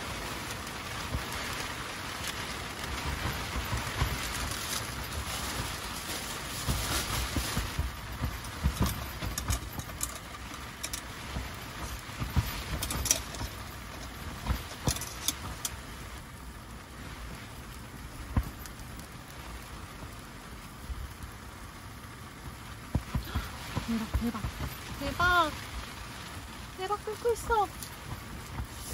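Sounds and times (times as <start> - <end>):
rain pattering on tent: 0.0 - 28.9
sharp ticks and knocks: 6.7 - 15.9.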